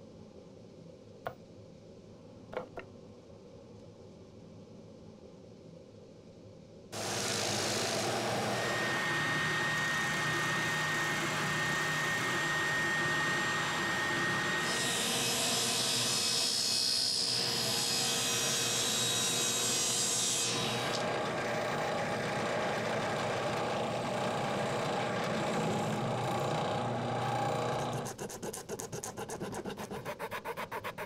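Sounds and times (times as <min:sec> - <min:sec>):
drill press boring into wood: 0:07.0 - 0:15.8, 0:20.8 - 0:28.1
table saw cutting wood: 0:07.0 - 0:31.0.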